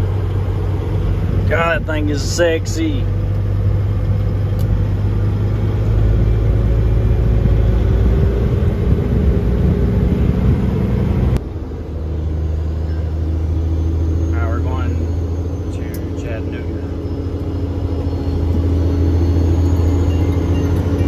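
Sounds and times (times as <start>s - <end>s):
truck diesel engine rumble: 0.0s - 21.0s.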